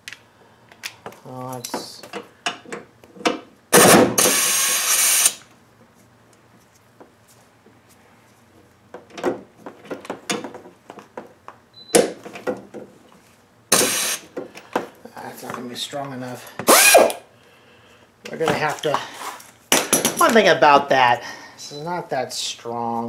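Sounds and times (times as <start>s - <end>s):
pneumatic tool burst: 3.7s - 5.4s, 13.7s - 14.3s, 16.7s - 17.2s.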